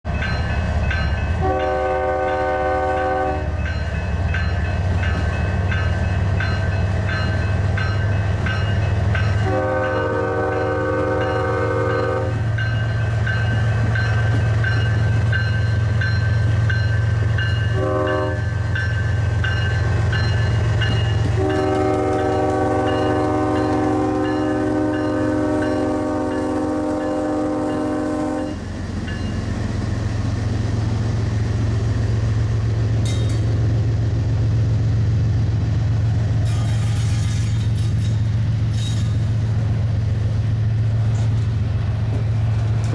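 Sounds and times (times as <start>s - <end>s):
locomotive air horn blasts: 1.4s - 3.6s, 9.4s - 12.4s, 17.7s - 18.5s, 21.3s - 28.6s.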